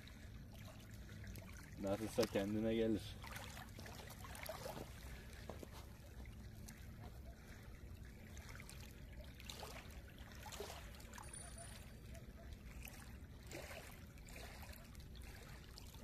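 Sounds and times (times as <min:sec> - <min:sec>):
low steady rumble: 0:00.0 - 0:16.0
water trickling and splashing: 0:00.0 - 0:16.0.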